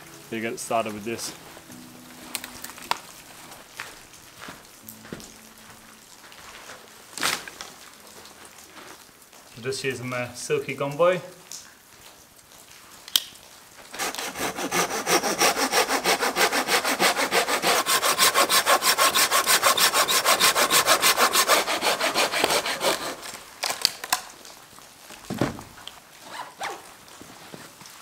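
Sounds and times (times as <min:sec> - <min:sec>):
saw cutting through branch: 0:13.9 - 0:23.5.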